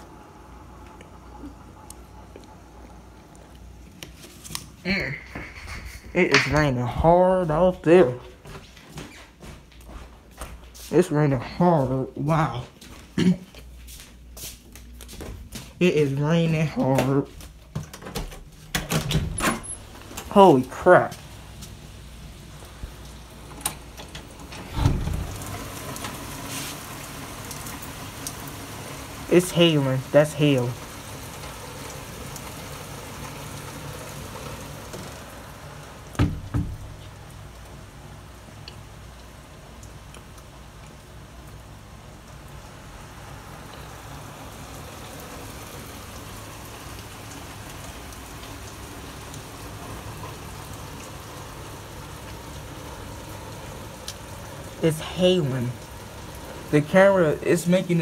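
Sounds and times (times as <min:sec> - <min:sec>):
heavy rain: 0:00.0 - 0:08.2, 0:18.7 - 0:58.0
dull thump: 0:36.2 - 0:36.9.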